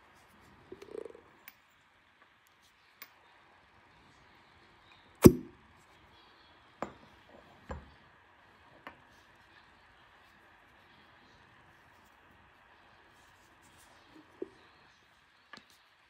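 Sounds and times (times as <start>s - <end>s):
suction cup popping off skin: 5.2s - 5.5s.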